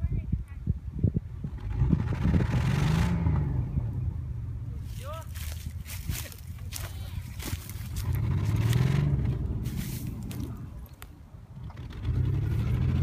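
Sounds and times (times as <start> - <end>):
engine revving under load: 1.4 - 4.8, 7.5 - 10.8, 11.5 - 13.0.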